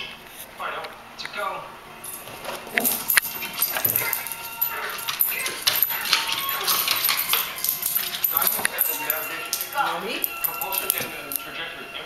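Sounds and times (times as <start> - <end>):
dog whining and whimpering: 2.7 - 11.4.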